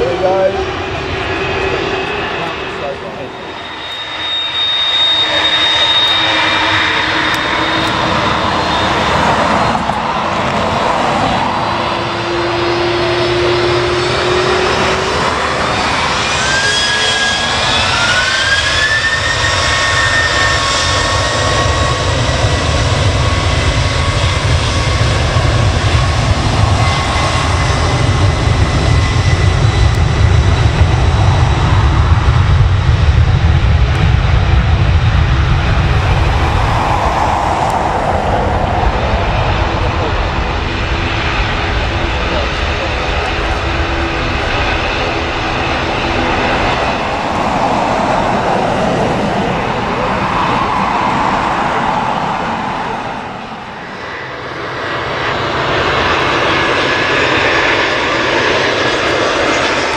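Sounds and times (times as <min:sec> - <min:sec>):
deep jet engine rumble: 0:00.0 - 0:59.9
jet engine whine: 0:00.0 - 0:59.9.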